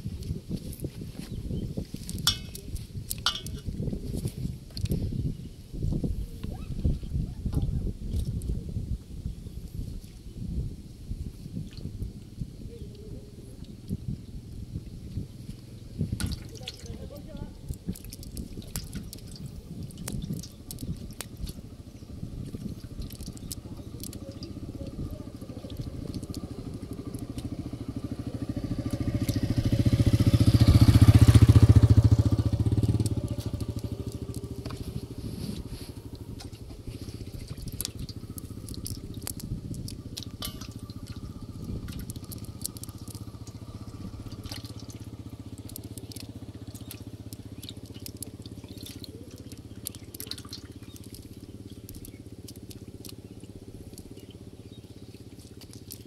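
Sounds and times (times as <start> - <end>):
low engine hum: 0.0 - 56.0
vehicle engine passing by: 23.6 - 55.6
light clicks and ticks: 41.9 - 43.6, 44.3 - 53.2, 55.4 - 56.0.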